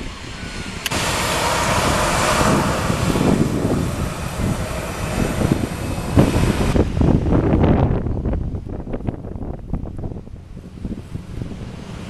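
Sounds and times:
jet engines roaring: 0:00.0 - 0:12.0.

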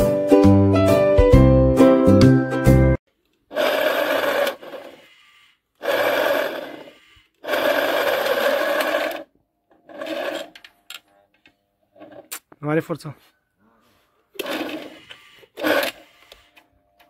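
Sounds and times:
electric winch whining: 0:03.5 - 0:10.6, 0:14.4 - 0:16.4.

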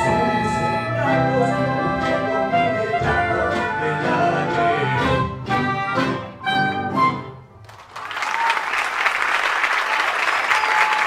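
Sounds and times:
tango ensemble playing chords: 0:00.0 - 0:07.6
audience applause: 0:07.6 - 0:11.0.

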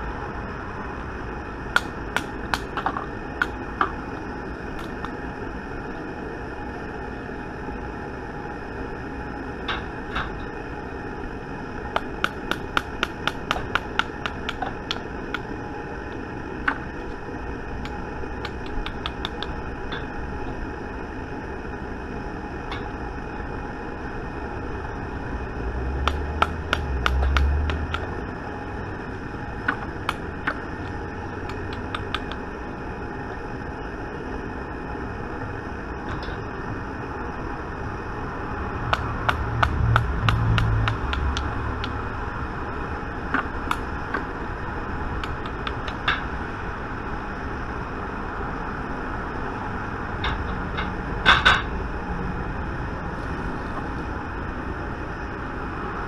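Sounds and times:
steady hum: 0:00.0 - 0:56.0
plastic stick tapping metal mold: 0:38.9 - 0:42.0.

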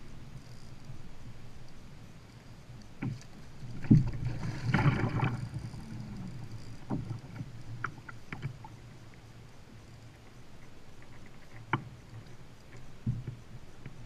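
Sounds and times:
water splashing: 0:03.0 - 0:08.8.

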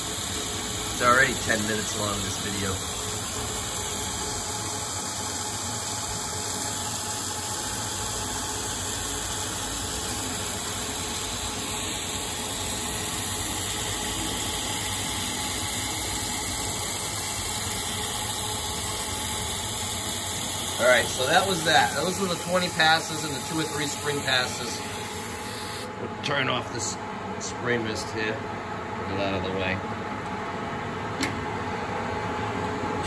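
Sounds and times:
lathe spindle running: 0:00.0 - 0:26.0.

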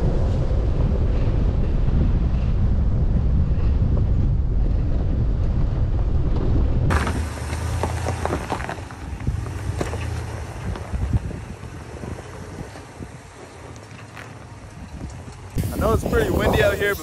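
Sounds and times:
truck rumbling on dirt road: 0:00.0 - 0:17.0
wind buffeting microphone: 0:00.0 - 0:17.0
rocks crunching and clicking: 0:06.4 - 0:15.6
pickup engine humming low: 0:06.9 - 0:16.1.

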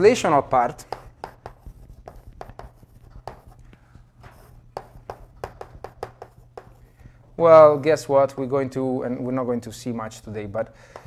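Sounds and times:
low room hum: 0:00.0 - 0:11.0
chalk tapping and scratching on board: 0:00.6 - 0:07.1.

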